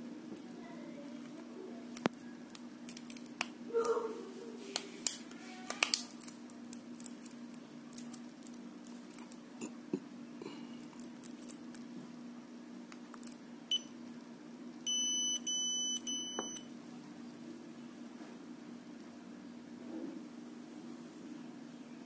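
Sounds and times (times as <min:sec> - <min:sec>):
camera beeping: 0:14.9 - 0:16.6.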